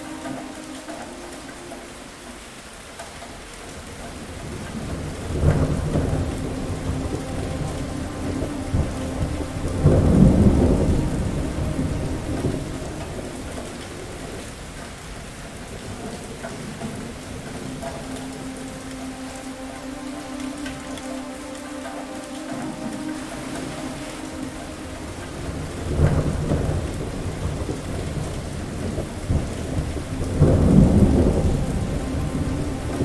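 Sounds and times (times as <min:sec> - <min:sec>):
steady rain: 0:00.0 - 0:33.0
thunder crack and rumble: 0:04.2 - 0:18.3, 0:25.0 - 0:33.0.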